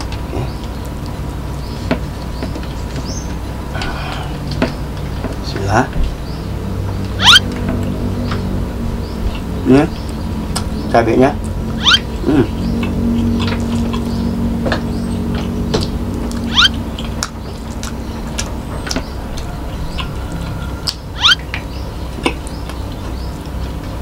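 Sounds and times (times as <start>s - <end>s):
loud rising chirps: 7.1s - 7.5s, 11.7s - 12.2s, 16.3s - 17.0s, 21.1s - 21.5s
mouth clicks and smacks: 11.4s - 19.4s
man chewing food: 11.4s - 24.0s.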